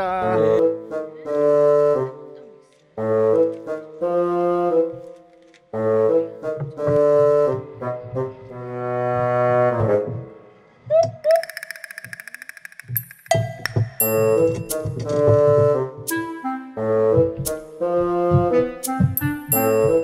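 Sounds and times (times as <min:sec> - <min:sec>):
brass or reed instrument melody: 0:00.2 - 0:02.4, 0:03.0 - 0:10.4, 0:14.1 - 0:20.0.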